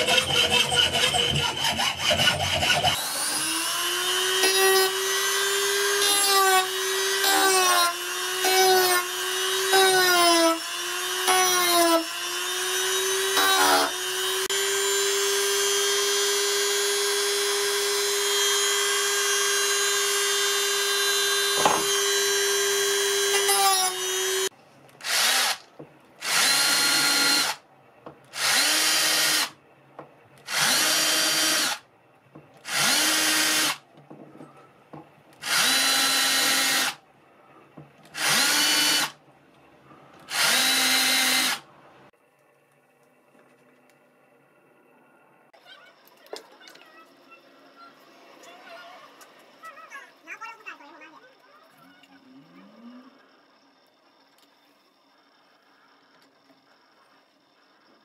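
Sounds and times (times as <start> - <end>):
power drill boring wood: 0.0 - 27.6, 28.3 - 29.6, 30.4 - 31.8, 32.6 - 33.8, 35.4 - 37.0, 38.1 - 39.2, 40.3 - 41.6
rotary tool grinding steel: 0.0 - 27.6.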